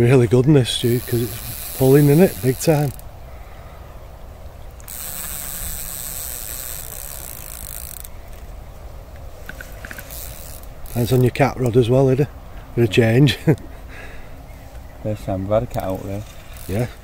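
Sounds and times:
fishing reel ratcheting: 0:00.8 - 0:03.1, 0:04.8 - 0:08.4, 0:09.5 - 0:11.4, 0:15.7 - 0:17.0.

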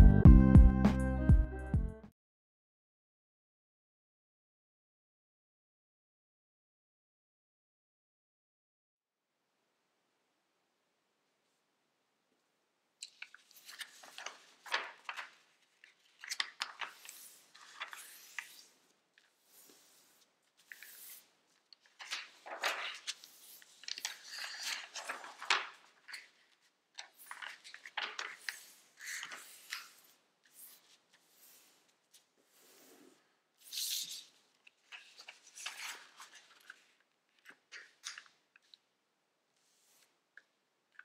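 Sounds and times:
paper rustling and crinkling: 0:13.0 - 0:38.8.

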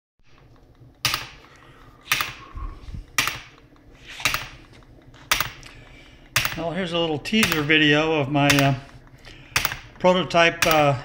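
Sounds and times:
solenoid clacking: 0:03.1 - 0:11.0.

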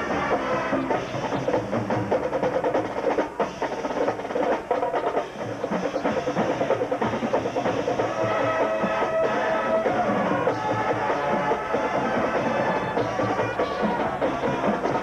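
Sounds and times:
brass long notes: 0:00.0 - 0:01.4, 0:05.8 - 0:15.0
marching drums: 0:00.0 - 0:15.0.

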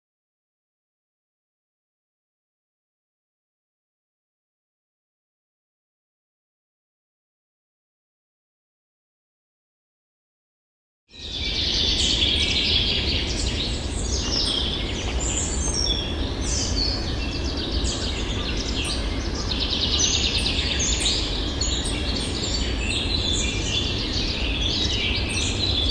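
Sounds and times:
songbirds chirping and trilling: 0:11.1 - 0:25.9
low background rumble: 0:11.3 - 0:25.9.

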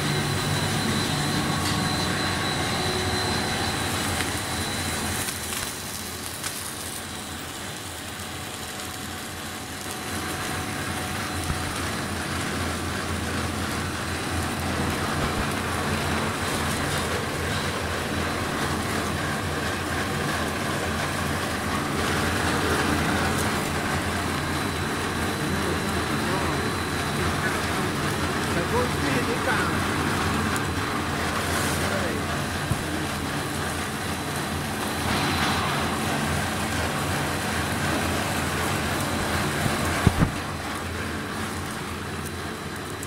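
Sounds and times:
thin high whine: 0:00.0 - 0:41.8
machine drone: 0:00.0 - 0:43.0.

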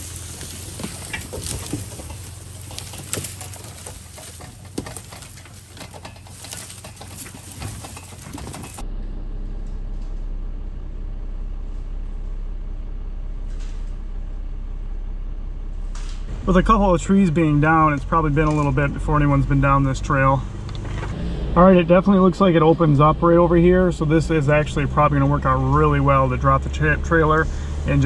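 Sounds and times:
twigs crackling under tyres: 0:00.0 - 0:08.9, 0:16.5 - 0:21.0
diesel engine running: 0:00.0 - 0:28.0
steady low hum: 0:00.0 - 0:28.0.

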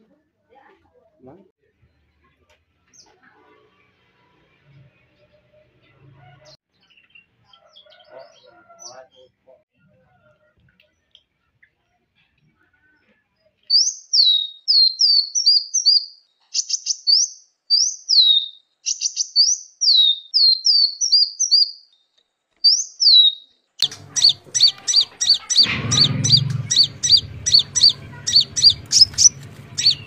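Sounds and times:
bird trills: 0:13.7 - 0:22.0, 0:22.6 - 0:30.0
songbirds whistling: 0:13.7 - 0:22.0, 0:22.6 - 0:30.0
repeated bird chirps: 0:13.7 - 0:30.0.

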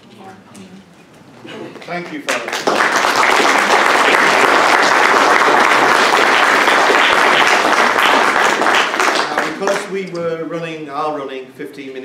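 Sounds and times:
audience applauding: 0:01.8 - 0:10.0.

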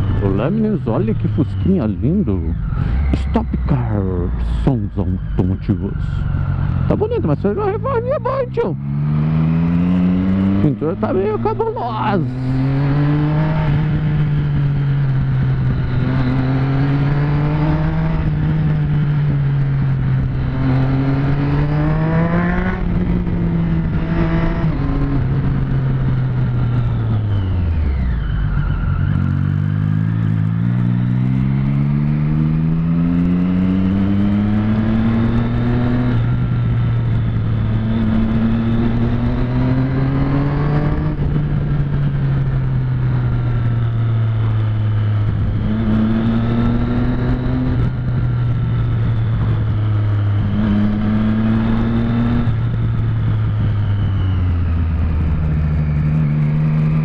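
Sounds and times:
motorcycle engine accelerating: 0:00.0 - 0:57.0
wind noise on microphone: 0:12.6 - 0:31.6, 0:32.5 - 0:57.0.

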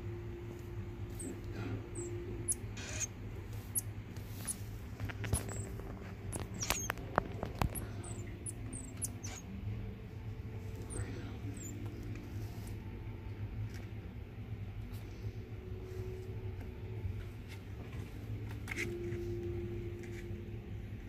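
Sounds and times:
steady low hum: 0:00.0 - 0:21.0
baby animals squeaking: 0:01.2 - 0:04.6, 0:05.2 - 0:09.6, 0:10.8 - 0:11.8.

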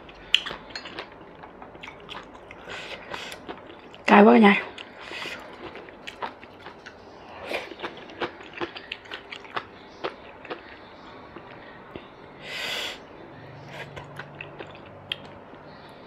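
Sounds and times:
person chewing food: 0:00.0 - 0:04.1, 0:04.7 - 0:12.1, 0:13.7 - 0:15.4.

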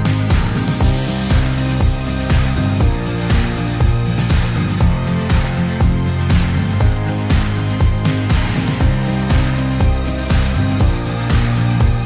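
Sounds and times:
background music with steady beat: 0:00.0 - 0:12.0
held bass notes: 0:00.0 - 0:12.0.

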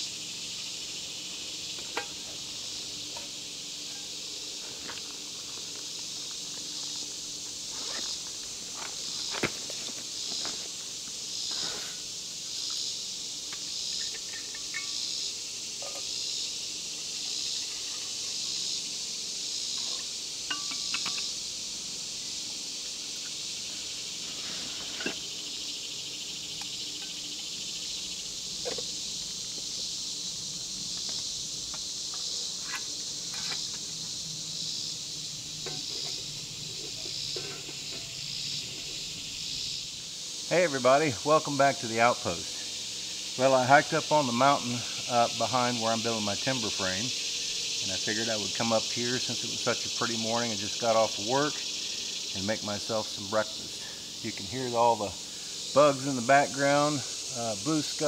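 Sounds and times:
insects buzzing drone: 0:00.0 - 0:58.0
metal pot being handled: 0:37.3 - 0:38.1.

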